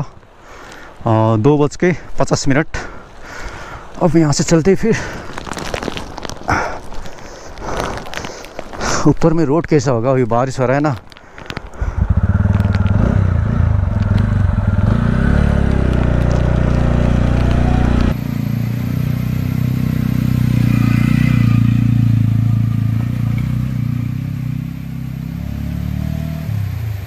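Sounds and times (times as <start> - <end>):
motorcycle engine running: 12.0 - 27.0.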